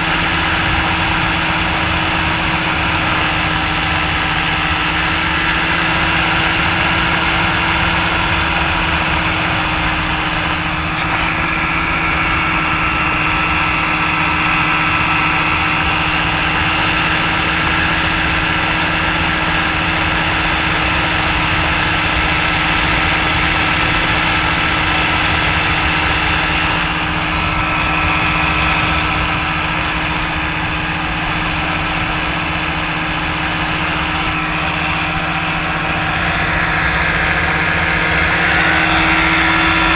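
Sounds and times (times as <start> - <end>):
ultralight aircraft engine drone: 0.0 - 39.9.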